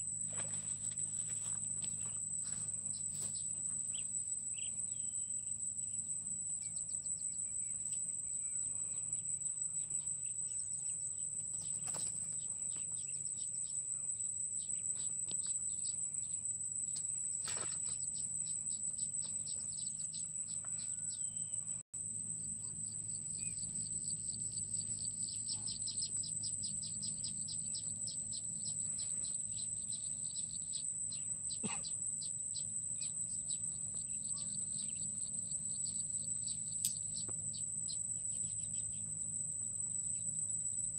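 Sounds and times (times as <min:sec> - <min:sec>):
insects droning: 0:00.0 - 0:40.9
bird chirps: 0:00.4 - 0:06.0, 0:17.4 - 0:21.8, 0:22.6 - 0:39.2
fast chirping trills: 0:22.9 - 0:39.2.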